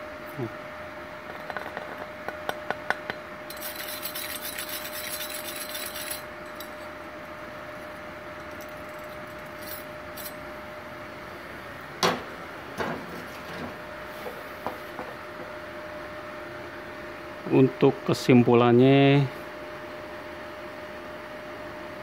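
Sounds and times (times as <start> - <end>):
wire brush scraping metal: 3.5 - 6.2.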